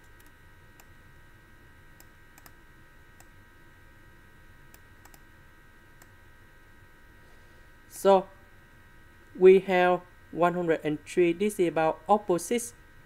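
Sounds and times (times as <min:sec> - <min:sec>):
computer mouse clicks: 0:00.0 - 0:00.9, 0:02.0 - 0:02.6, 0:04.7 - 0:05.3
faint hum: 0:00.0 - 0:13.0.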